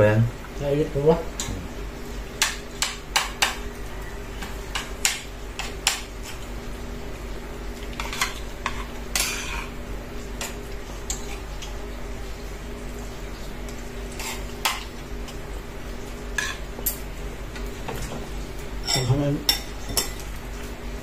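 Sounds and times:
cutlery clinking on ceramic plate: 0:18.8 - 0:20.2.

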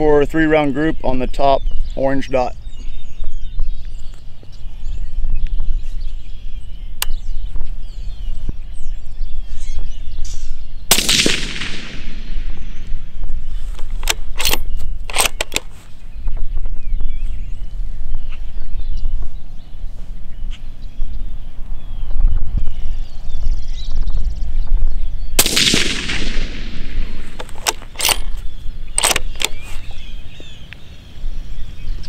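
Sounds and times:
wind rumble on microphone: 0:00.0 - 0:32.0
suppressed rifle shot: 0:10.9 - 0:15.6, 0:25.4 - 0:29.6
sharp clicks: 0:13.8 - 0:15.7, 0:25.4 - 0:29.6.

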